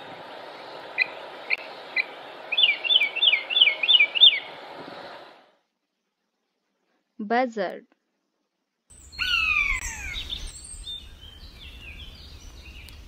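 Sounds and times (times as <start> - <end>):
outdoor background hiss: 0.0 - 13.0
mockingbird singing: 1.0 - 4.6, 8.9 - 13.0.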